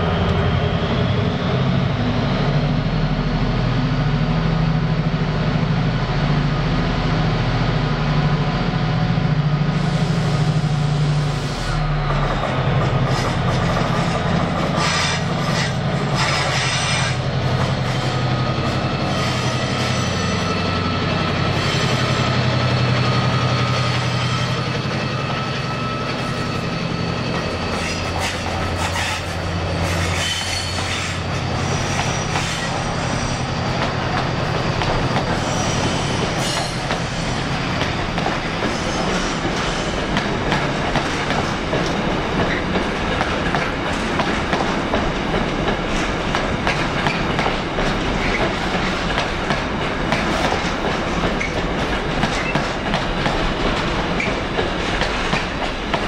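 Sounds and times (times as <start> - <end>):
train engine hum: 0.0 - 56.0
train wheel squeal: 9.8 - 40.2, 46.6 - 47.4, 48.1 - 49.0, 52.2 - 52.8.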